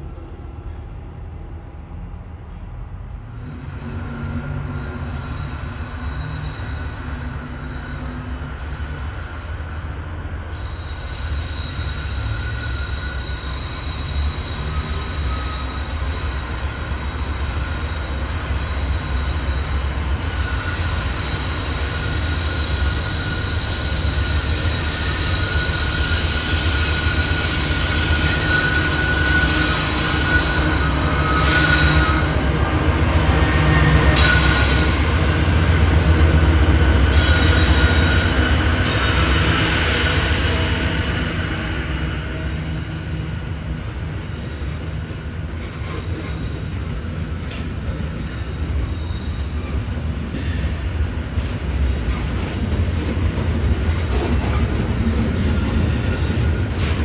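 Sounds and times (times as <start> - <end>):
train rumbling past: 0.0 - 57.0
wheel squeal: 4.4 - 8.4, 10.5 - 35.5, 37.1 - 42.4, 45.6 - 51.0.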